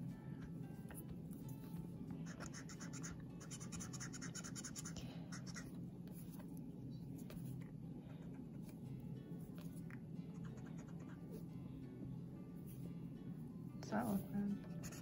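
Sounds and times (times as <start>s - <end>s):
marker scratching on paper: 2.2s - 6.4s, 10.3s - 11.4s, 14.7s - 15.0s.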